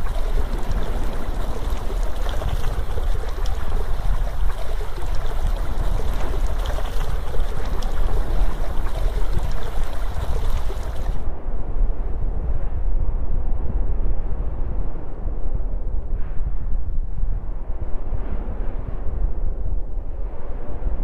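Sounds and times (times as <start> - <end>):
deep rumble: 0.0 - 11.3
rushing water: 0.0 - 11.3.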